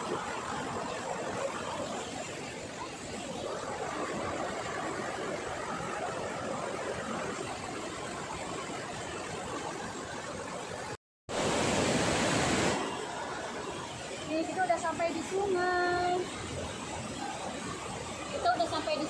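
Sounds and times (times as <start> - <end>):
stream rushing over boulders: 0.0 - 19.0.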